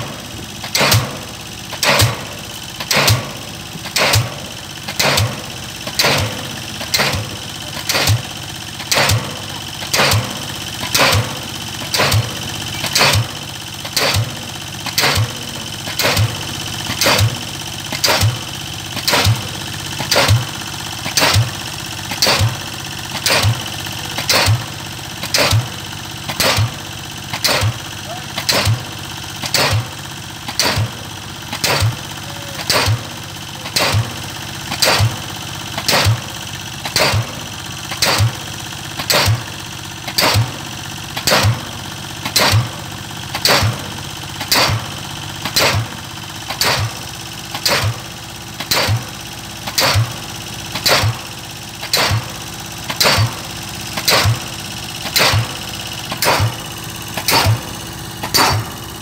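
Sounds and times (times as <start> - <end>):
pile-driving hammer striking: 0.0 - 18.4, 19.0 - 20.5, 21.1 - 21.5, 22.1 - 22.6, 23.2 - 23.6, 25.3 - 25.7, 26.3 - 27.8, 28.4 - 29.9, 30.5 - 32.0, 34.8 - 35.2, 35.8 - 37.4, 39.0 - 39.5, 42.2 - 42.8, 43.4 - 45.9, 46.5 - 47.0, 47.6 - 48.0, 48.6 - 49.0, 49.7 - 50.1, 50.8 - 51.2, 51.8 - 52.3, 52.9 - 53.4, 54.0 - 54.4, 55.0 - 56.6, 57.2 - 58.8
piling rig engine running: 0.0 - 59.0.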